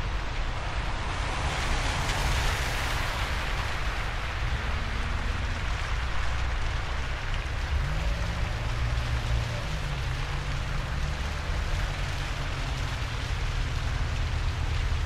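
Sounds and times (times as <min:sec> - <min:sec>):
rain-like hiss: 0:00.0 - 0:15.0.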